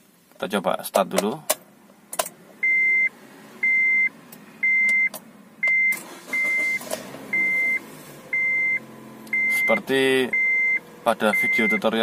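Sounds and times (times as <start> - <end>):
dashboard warning chime beeping: 2.6 - 12.0
car starter cranking: 4.8 - 11.8
car engine fast idle: 5.9 - 11.3.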